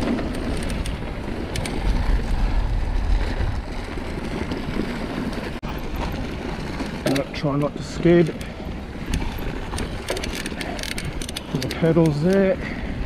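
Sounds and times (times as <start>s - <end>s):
sharp clicks from bike: 0.0s - 13.0s
tyres rumbling on dirt: 0.0s - 13.0s
wind rushing over microphone: 0.0s - 13.0s.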